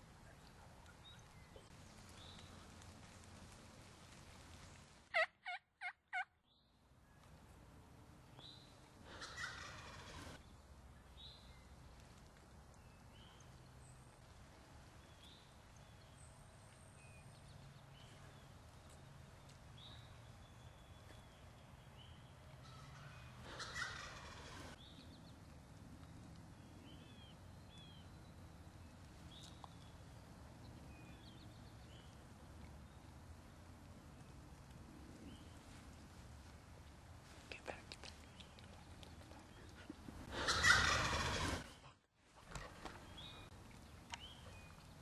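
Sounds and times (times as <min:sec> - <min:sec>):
turkey gobbling: 0:05.2 - 0:06.3, 0:09.2 - 0:10.1, 0:23.5 - 0:24.5, 0:40.3 - 0:41.5.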